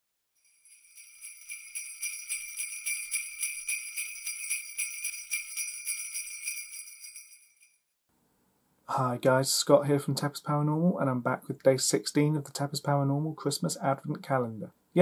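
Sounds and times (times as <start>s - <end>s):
sleigh bells shaking: 0.4s - 7.8s.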